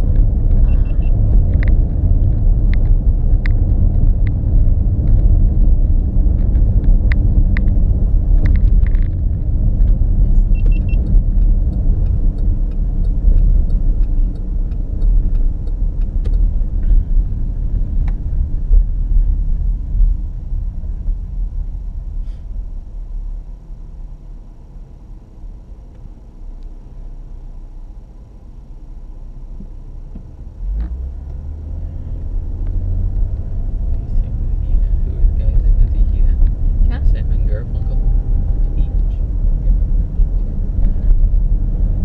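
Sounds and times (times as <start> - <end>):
car cabin road and engine rumble: 0.0 - 42.0
light clicks and ticks: 9.8 - 16.9.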